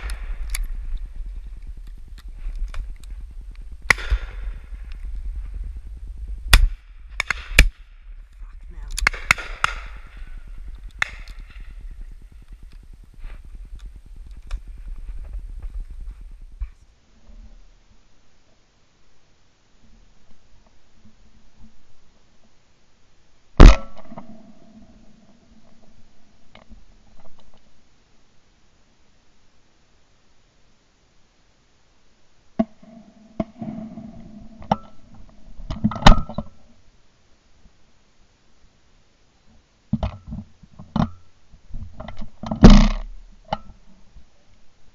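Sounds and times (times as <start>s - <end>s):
wind rumble on microphone: 0.0s - 16.9s
steady low tone: 0.0s - 17.9s
shotgun shots: 3.9s - 4.6s, 6.5s - 7.8s, 9.0s - 10.4s.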